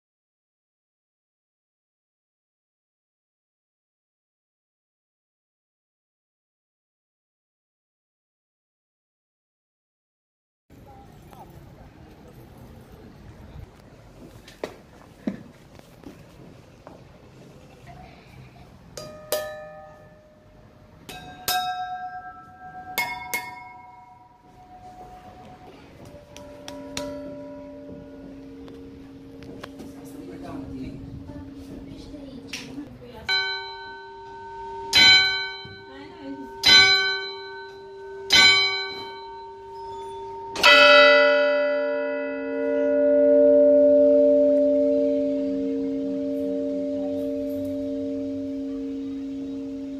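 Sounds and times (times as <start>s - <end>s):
small church bells struck: 21.1s - 49.9s.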